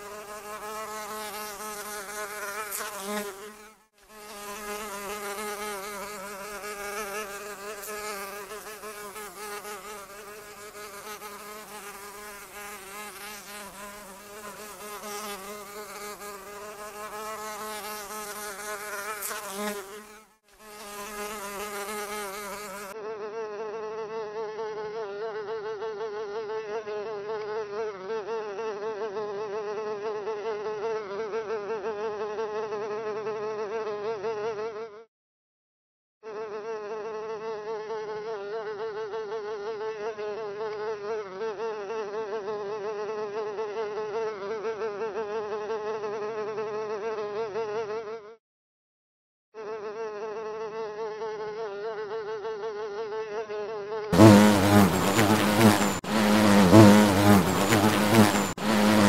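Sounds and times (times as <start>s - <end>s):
fly buzzing: 0.0s - 23.0s, 49.6s - 59.0s.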